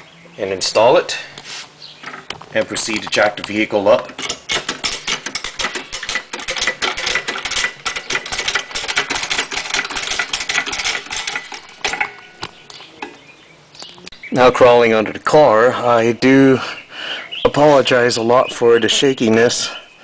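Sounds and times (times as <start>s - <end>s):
floor jack pumping clicks: 2.0s - 13.2s.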